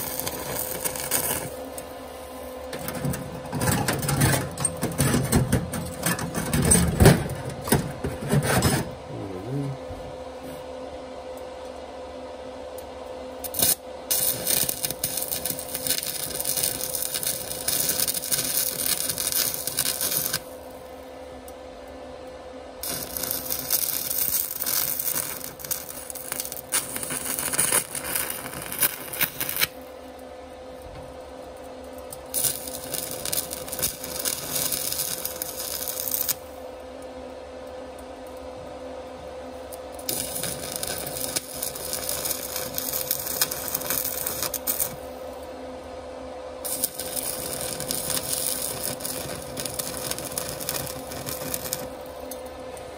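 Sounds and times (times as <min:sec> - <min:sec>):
welding arc crackling: 0:00.0 - 0:07.8, 0:13.4 - 0:20.8, 0:22.8 - 0:29.9, 0:32.0 - 0:36.6, 0:39.7 - 0:45.4, 0:46.6 - 0:52.9
steady hum: 0:00.0 - 0:52.9.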